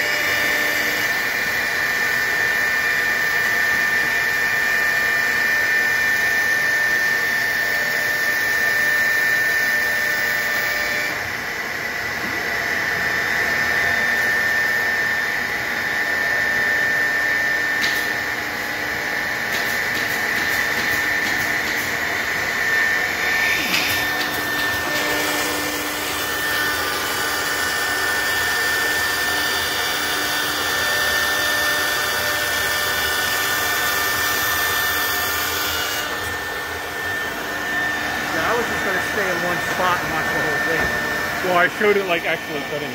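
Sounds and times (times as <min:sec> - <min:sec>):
router spindle whine: 0:00.0 - 0:42.9
vacuum dust extraction rushing: 0:36.2 - 0:42.9.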